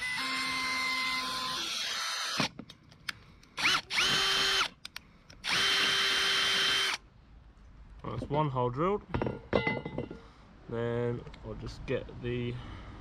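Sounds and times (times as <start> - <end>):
cordless drill boring metal: 0.0 - 2.5, 3.6 - 4.7, 5.4 - 7.0.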